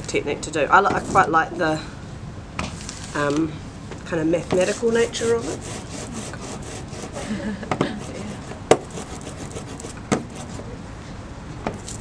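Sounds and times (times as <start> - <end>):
rubber roller rolling through ink: 4.4 - 10.7.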